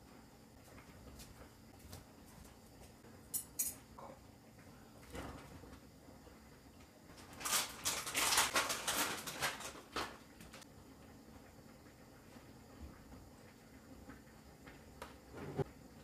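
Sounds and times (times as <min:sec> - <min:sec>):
plastic packet crinkling: 0:07.2 - 0:10.6.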